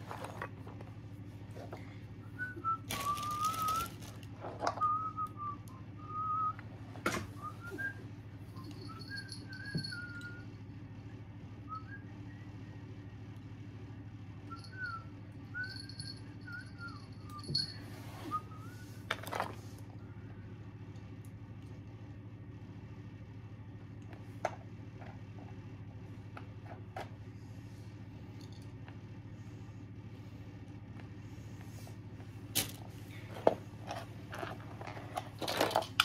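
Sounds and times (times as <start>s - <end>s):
toys being handled and rustled: 0.0s - 1.9s, 2.6s - 5.1s, 17.4s - 20.0s, 31.0s - 36.0s
person whistling a tune: 2.4s - 4.0s, 4.8s - 6.6s, 7.4s - 8.0s, 8.6s - 10.4s.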